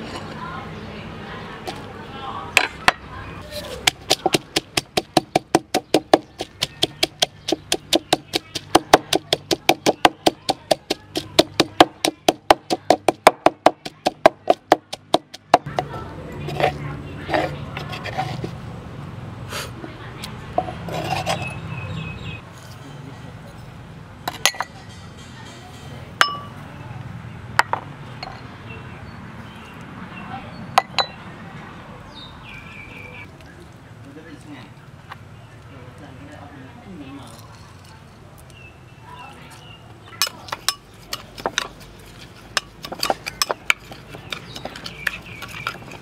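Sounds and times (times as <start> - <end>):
wooden pestle pounding in mortar: 3.8 - 15.9, 40.5 - 41.8, 42.4 - 46.0.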